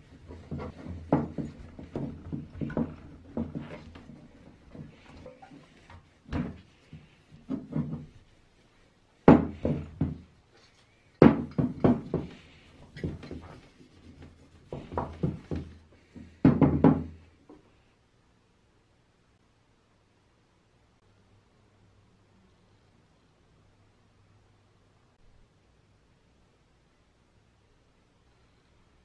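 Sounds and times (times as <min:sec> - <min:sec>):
cloth rubbing metal: 0:00.0 - 0:10.7, 0:11.4 - 0:15.9
metal tank knocking on wood: 0:11.2 - 0:12.4.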